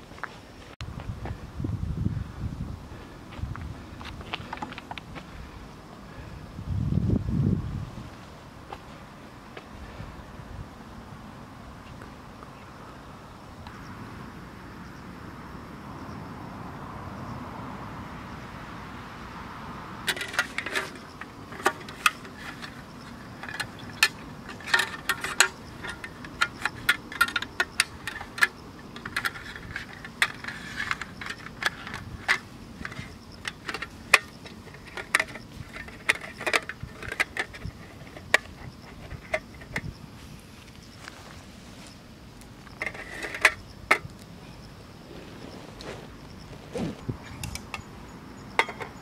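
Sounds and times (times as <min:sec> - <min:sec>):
metal table clinking and clattering: 0:20.1 - 0:39.8, 0:48.5 - 0:49.0.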